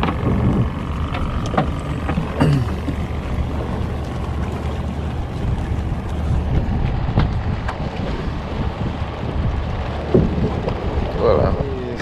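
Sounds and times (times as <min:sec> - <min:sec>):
boat low rumble: 0:00.0 - 0:12.0
wind on microphone: 0:00.0 - 0:12.0.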